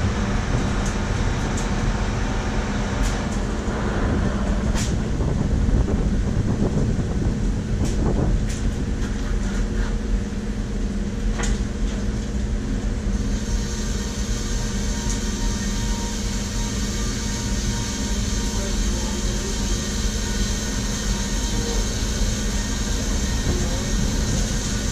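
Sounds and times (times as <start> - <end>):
combine harvester engine running: 0.0 - 24.9.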